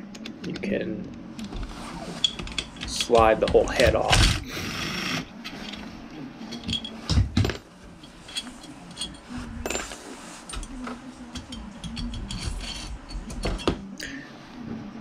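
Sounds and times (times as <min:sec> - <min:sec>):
metal engine parts clinking: 0:02.1 - 0:04.1, 0:05.4 - 0:13.8.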